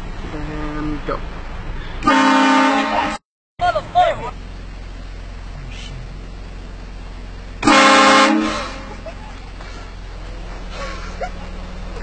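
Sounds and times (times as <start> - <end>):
train horn blast: 2.0 - 3.2, 7.6 - 9.0.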